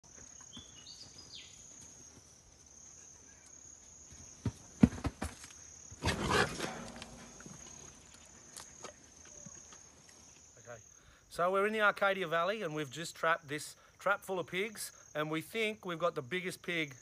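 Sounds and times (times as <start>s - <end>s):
high insect buzz: 0.2s - 11.1s
pig grunting: 6.0s - 7.3s.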